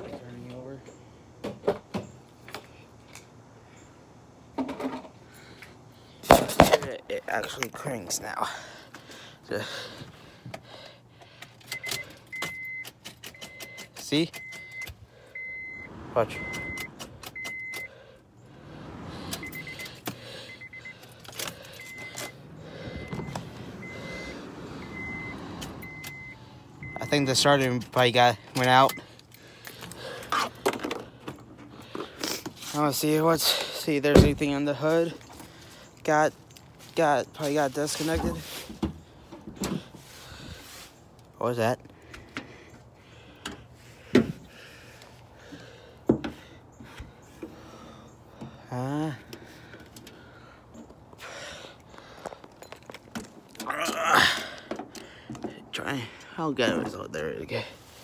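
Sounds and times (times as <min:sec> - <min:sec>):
faint steady background noise: 0:00.0 - 0:58.0
car warning chime beeping: 0:11.7 - 0:29.3.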